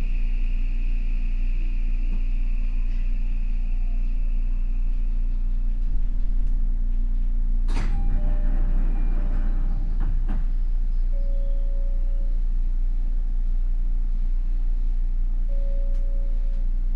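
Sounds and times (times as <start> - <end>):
faint high whine: 0.0 - 16.9
train wheels rumbling on rail: 7.8 - 10.9.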